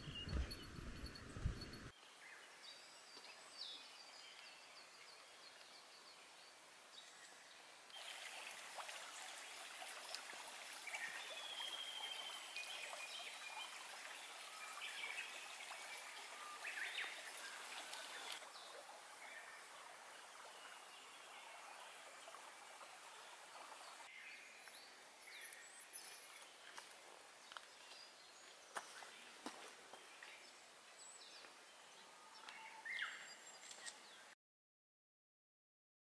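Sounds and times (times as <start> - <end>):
birds calling: 0.0 - 1.9
low thumps: 0.0 - 1.9
stream babbling: 0.0 - 1.9, 6.3 - 24.2.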